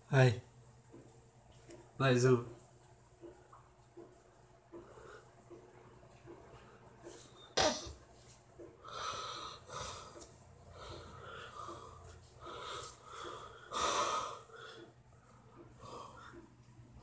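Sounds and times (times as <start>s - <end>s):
person breathing heavily: 8.8s - 16.6s.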